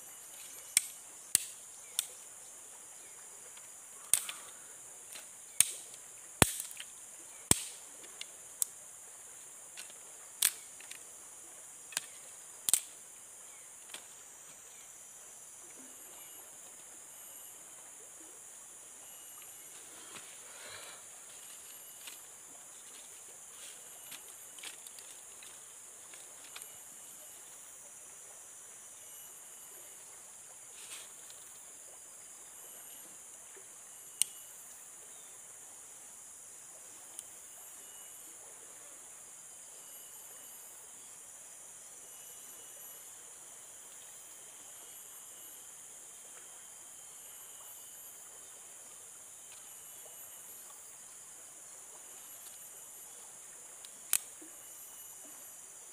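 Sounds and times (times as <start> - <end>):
sharp snaps or knocks: 0.7 - 2.1, 4.1 - 6.9, 7.5 - 8.7, 11.9 - 12.9
high-pitched insect drone: 13.5 - 28.0, 28.7 - 30.2.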